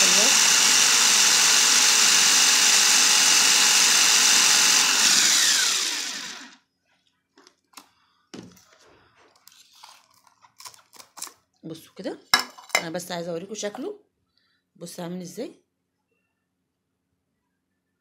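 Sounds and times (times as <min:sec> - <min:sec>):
blender motor whining: 0:00.0 - 0:06.6.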